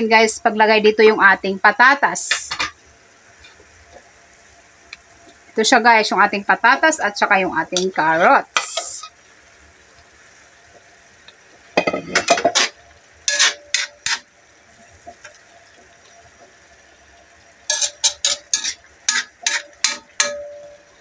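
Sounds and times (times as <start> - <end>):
metal utensil clinking on a wok: 11.8 - 12.7, 13.3 - 14.3, 17.7 - 20.8.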